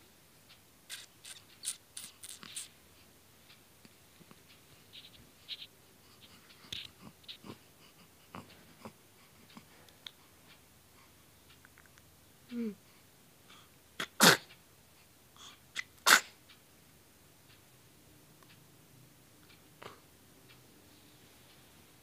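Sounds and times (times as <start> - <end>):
soft ticks and rustles: 0.4 - 7.6.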